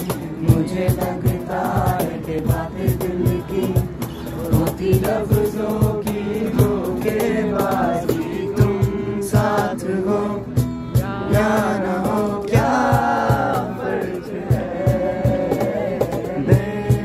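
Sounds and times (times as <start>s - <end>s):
box drum beat: 0.0s - 17.0s
group singing in chorus: 0.0s - 17.0s
strummed acoustic guitar: 0.0s - 17.0s.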